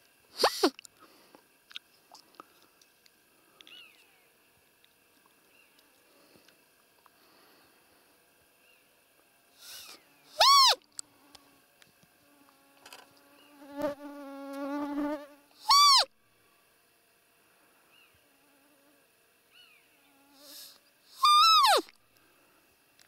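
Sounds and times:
insect buzzing: 9.5 - 16.1, 17.8 - 21.8
deer call squeak: 9.7 - 10.8, 15.6 - 16.1, 20.5 - 21.9.

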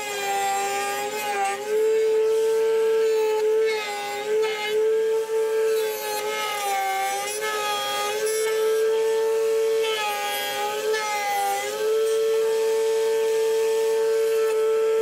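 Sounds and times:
router cutting wood: 0.0 - 15.0
router whining: 0.0 - 15.0.

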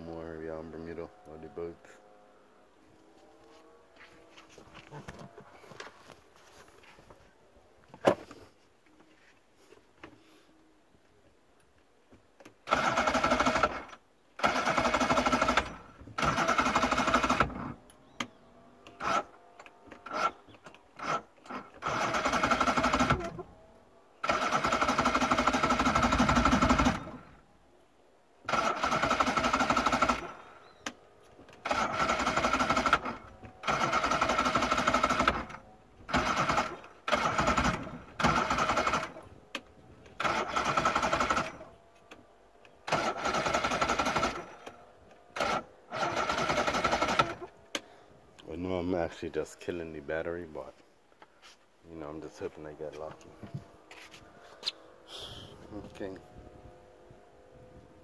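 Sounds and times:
electric starter cranking engine: 12.6 - 17.8, 18.8 - 23.4, 24.2 - 27.4, 28.4 - 39.3, 40.0 - 42.2, 42.8 - 47.8.

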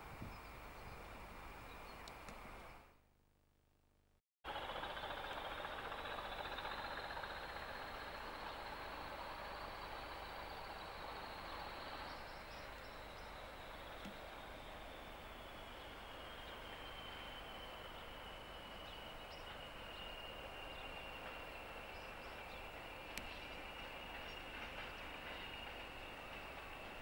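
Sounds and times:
distant locomotive engine: 4.5 - 27.0.

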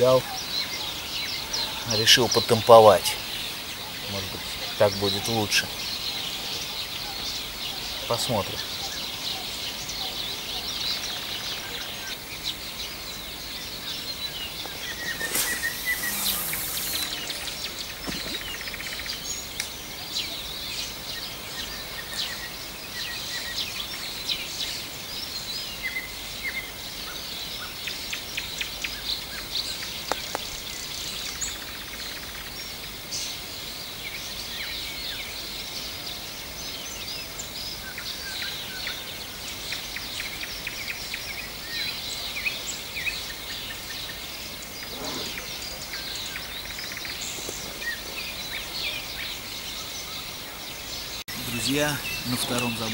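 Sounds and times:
songbirds chorus: 0.0 - 52.9
brief hiss: 14.8 - 18.5, 44.9 - 45.5.

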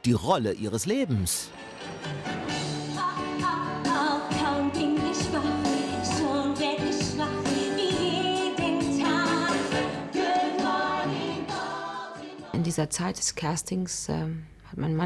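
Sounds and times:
woman singing: 2.9 - 12.9.

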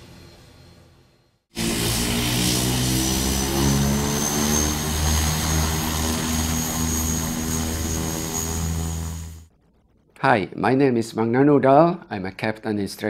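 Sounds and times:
turboprop engines droning: 0.0 - 9.5.

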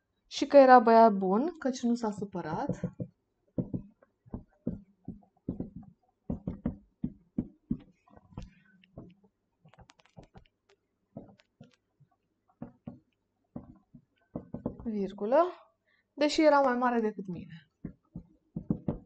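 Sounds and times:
marker writing on whiteboard: 2.0 - 10.4, 11.2 - 11.8, 13.6 - 14.9, 17.8 - 19.0.

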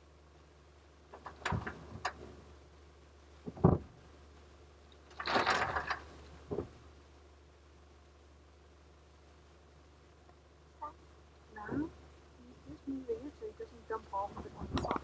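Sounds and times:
heavy thumps in truck bed: 3.4 - 3.9
knocks: 3.4 - 3.9.

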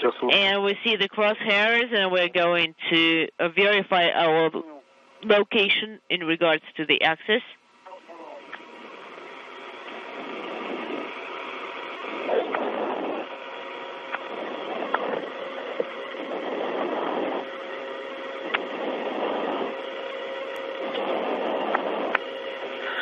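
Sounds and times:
radio static hiss: 0.0 - 23.0
surges of radio noise: 5.3 - 23.0.

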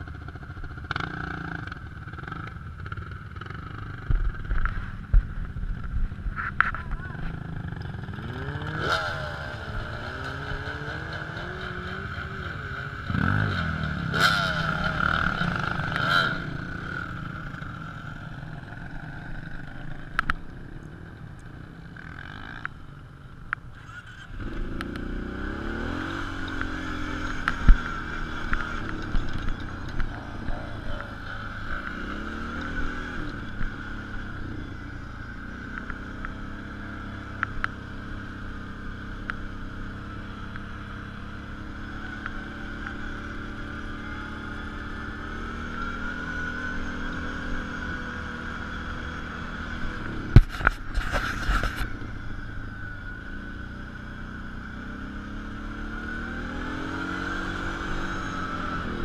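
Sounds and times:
off-road engines running: 0.0 - 59.0
small engine revving: 7.0 - 17.8, 23.7 - 59.0.

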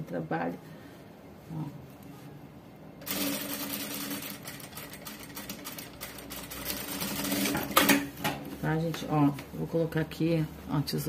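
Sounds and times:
sewing machine running: 3.0 - 8.0.

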